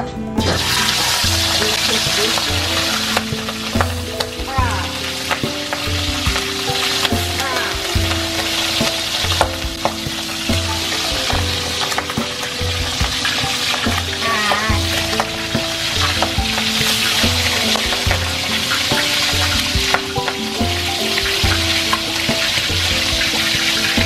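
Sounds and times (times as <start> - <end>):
background music with pulsing bass: 0.0 - 24.0
meat sizzling in hot oil: 0.4 - 24.0.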